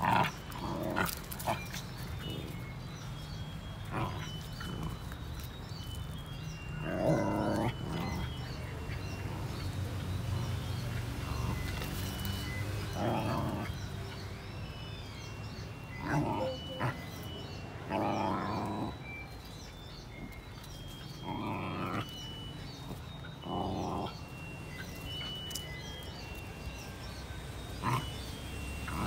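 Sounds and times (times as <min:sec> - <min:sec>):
young dogs growling and snarling: 0:00.0 - 0:14.5, 0:15.1 - 0:29.0.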